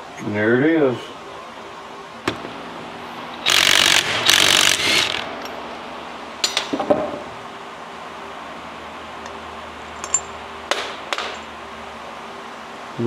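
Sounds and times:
cordless drill running: 3.4s - 5.3s.

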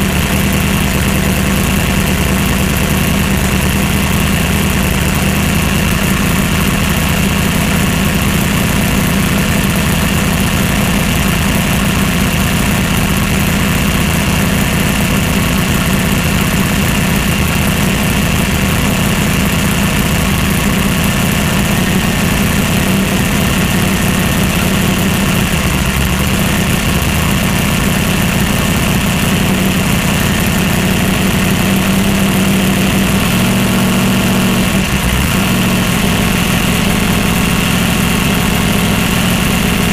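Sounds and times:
drag car engine idling loudly: 0.0s - 39.9s.

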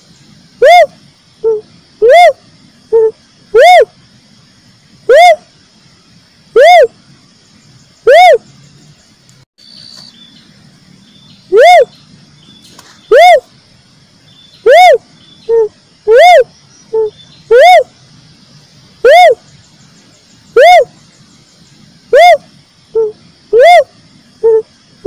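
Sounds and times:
dove hooting: 0.6s - 4.0s, 5.1s - 5.5s, 6.5s - 7.0s, 8.0s - 8.4s, 11.5s - 12.0s, 13.1s - 13.5s, 14.6s - 17.9s, 19.0s - 19.5s, 20.5s - 21.0s, 22.0s - 24.7s.

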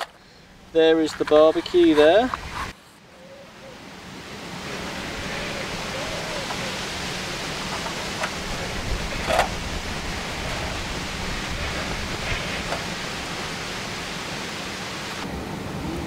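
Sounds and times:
wind on microphone: 4.3s - 16.0s.

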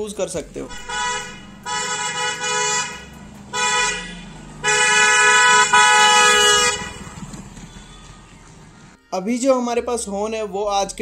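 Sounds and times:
motorcycle electric horn honking: 0.7s - 8.3s.

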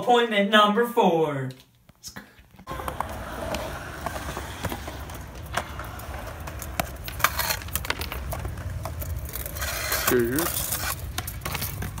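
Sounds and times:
skateboard decks clacking on ground: 2.6s - 12.0s
wheels rolling on concrete: 2.6s - 12.0s.

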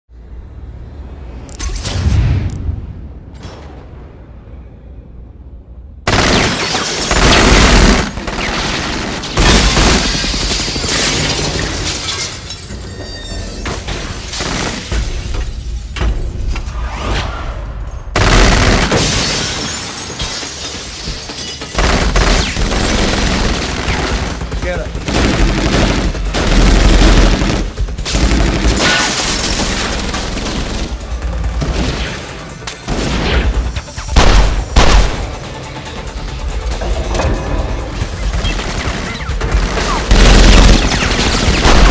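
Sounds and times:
glass shattering crash: 9.4s - 15.8s, 18.8s - 21.8s, 28.8s - 30.2s
action music score: 20.9s - 41.9s.

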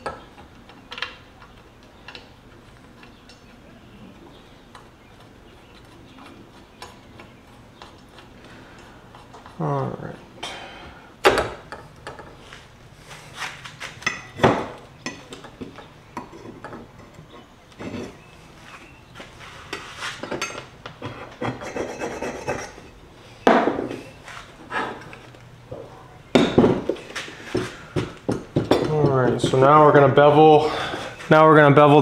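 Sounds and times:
steel plates knocking and scraping: 27.5s - 29.8s.

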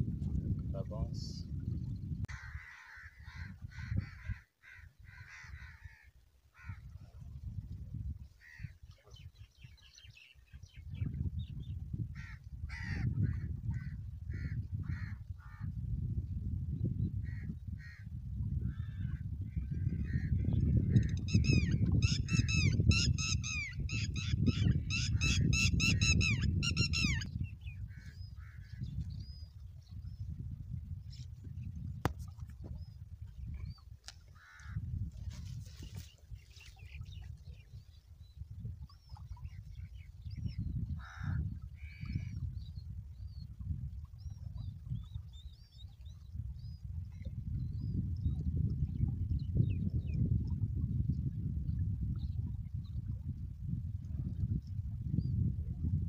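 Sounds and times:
wind on microphone: 0.0s - 56.0s
birds calling: 18.8s - 29.4s.

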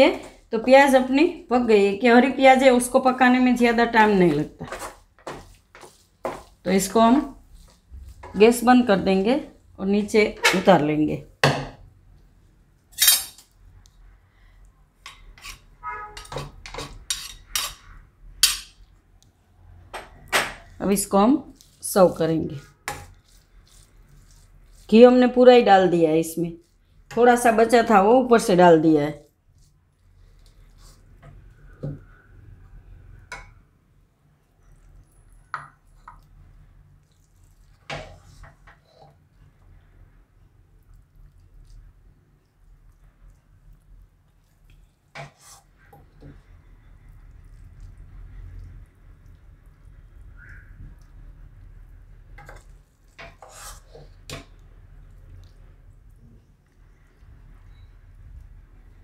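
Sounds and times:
spatula scraping a pan: 4.6s - 8.6s, 15.0s - 18.7s, 21.5s - 25.4s, 29.5s - 32.0s, 37.5s - 39.2s, 45.1s - 46.4s, 52.4s - 54.6s
low steady hum: 45.7s - 53.3s.

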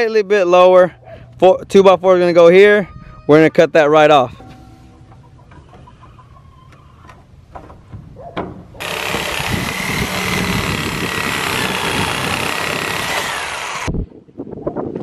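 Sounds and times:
reciprocating saw cutting wood: 8.8s - 14.0s.

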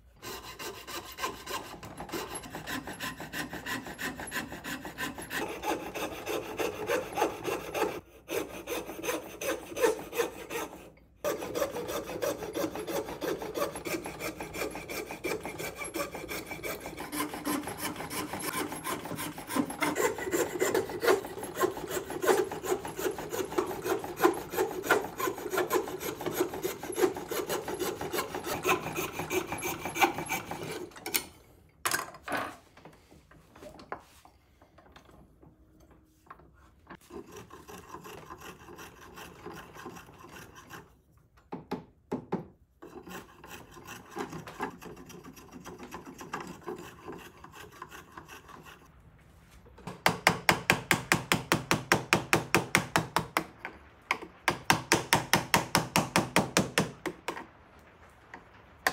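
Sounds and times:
saw cutting wood: 0.2s - 31.0s, 37.0s - 41.0s, 42.8s - 48.9s, 50.1s - 57.4s.

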